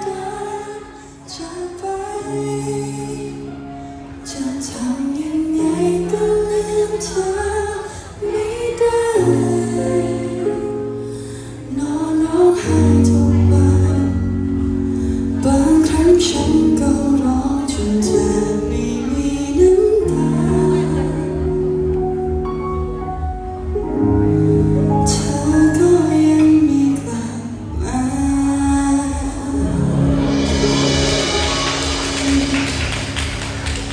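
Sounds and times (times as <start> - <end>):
woman singing into a microphone: 0.0 - 21.8, 25.0 - 30.6
band with guitar: 27.8 - 33.9.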